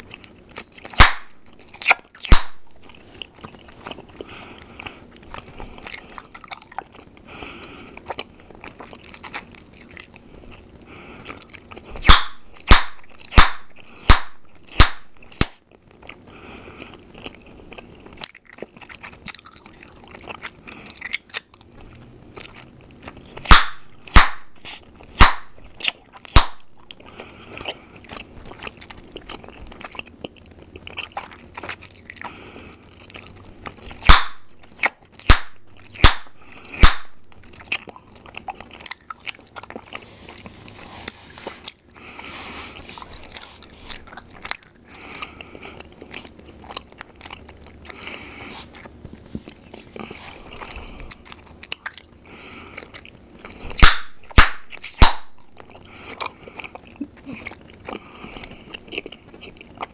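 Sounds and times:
gum chewing: 0.0s - 59.9s
gum pops: 0.2s - 3.0s, 11.4s - 15.6s, 23.3s - 27.0s, 33.7s - 39.2s, 52.8s - 57.4s.

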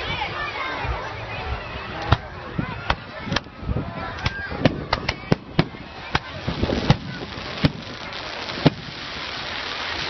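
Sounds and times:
fireworks cracking and banging: 4.2s - 10.0s.

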